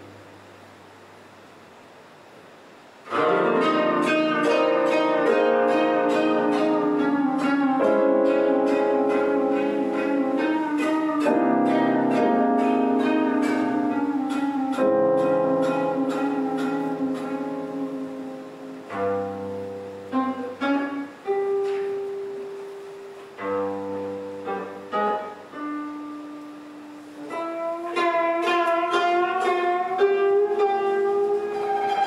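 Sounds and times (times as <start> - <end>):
koto plucked notes: 3.1 - 22.7, 27.2 - 32.0.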